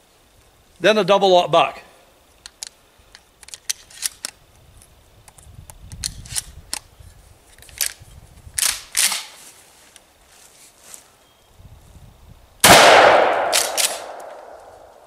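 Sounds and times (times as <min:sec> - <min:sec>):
shotgun shells clicking into magazine: 0:02.4 - 0:04.4
shotgun pump action clacks: 0:08.6 - 0:09.3, 0:12.9 - 0:14.6.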